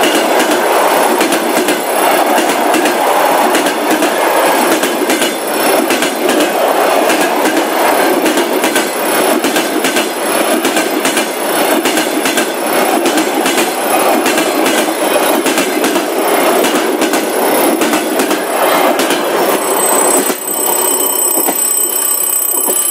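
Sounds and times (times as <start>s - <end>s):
wheels clicking over rail joints: 0.0s - 19.6s
train wheels rumbling on rail: 0.0s - 22.9s
high ringing tone: 19.4s - 22.9s.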